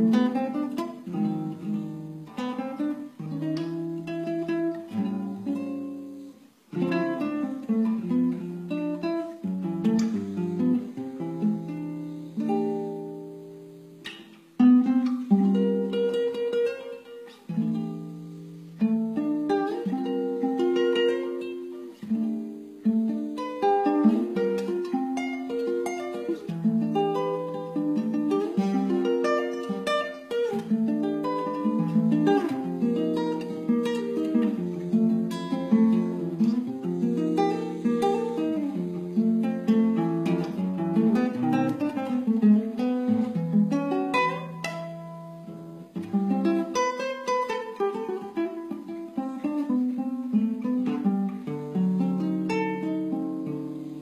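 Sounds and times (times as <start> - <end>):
nylon-string guitar jazz ballad: 0.0 - 54.0.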